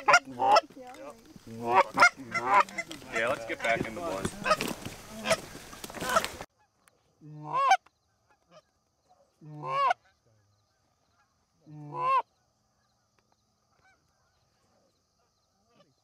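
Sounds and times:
goose honks: 0:00.0 - 0:00.8, 0:01.5 - 0:05.4, 0:06.0 - 0:06.4, 0:09.4 - 0:10.2, 0:11.2 - 0:12.2
rustling field noise: 0:00.0 - 0:07.2.

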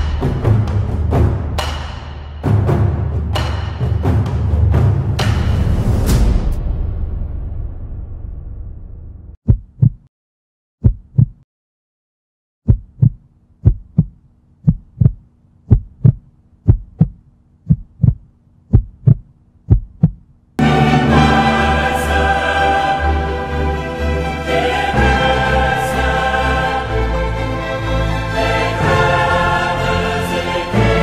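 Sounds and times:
music: 0:00.0 - 0:09.4, 0:20.6 - 0:31.0
heartbeat thumps: 0:09.4 - 0:10.1, 0:10.8 - 0:11.4, 0:12.7 - 0:20.3.

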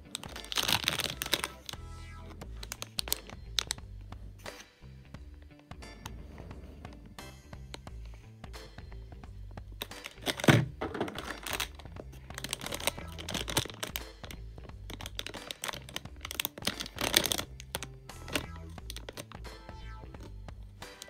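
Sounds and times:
background music: 0:00.0 - 0:21.0
plastic bag crinkling: 0:00.1 - 0:01.8, 0:02.6 - 0:03.8, 0:09.8 - 0:19.3.

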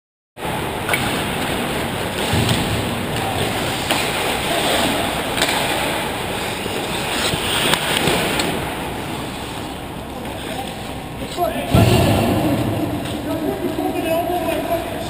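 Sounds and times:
hockey sticks and puck clacking: 0:00.8 - 0:08.6
skate blades scraping ice: 0:03.4 - 0:09.8.

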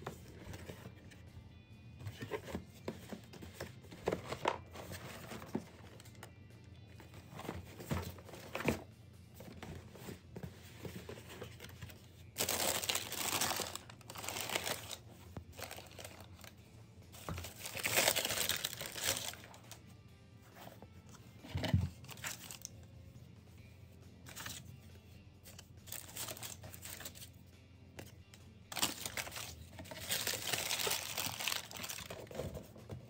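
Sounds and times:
tissue paper crinkling: 0:12.4 - 0:15.0, 0:28.8 - 0:32.2.

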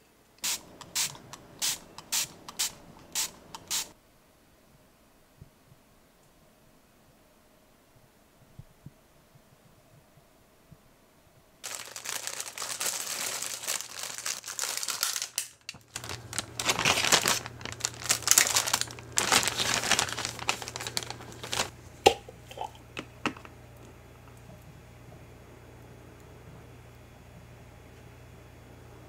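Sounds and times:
plastic bag crinkling: 0:11.6 - 0:21.8.

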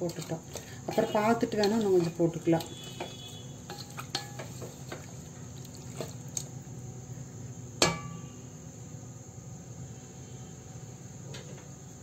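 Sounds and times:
spoon stirring in a pot: 0:00.0 - 0:06.5
metallic clank ringing: 0:07.8 - 0:08.3.

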